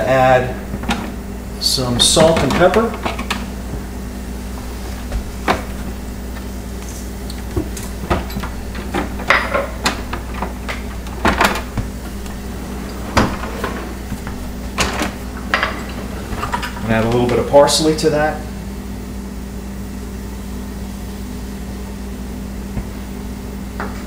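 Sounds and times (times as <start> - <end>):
low hum: 0.0 - 17.7.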